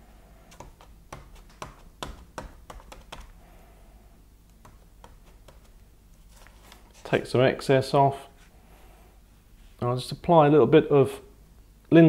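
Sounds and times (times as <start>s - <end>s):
cloth pad tapping on paper: 0.6s - 3.3s, 4.6s - 5.7s.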